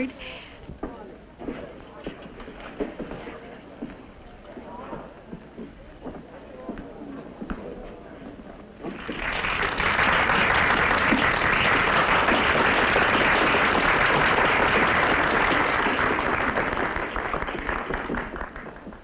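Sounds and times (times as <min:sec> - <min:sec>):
crowd applauding: 0:09.0 - 0:19.0.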